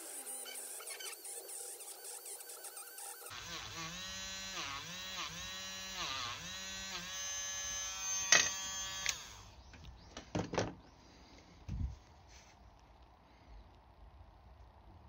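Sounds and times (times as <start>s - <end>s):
rotary tool whining: 0.0s - 9.7s.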